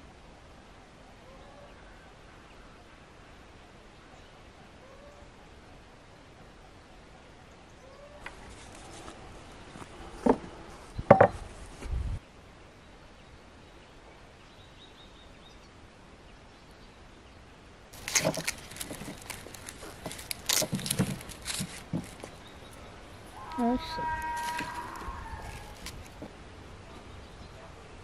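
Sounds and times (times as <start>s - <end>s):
onion skin crackling: 18.0s - 26.3s.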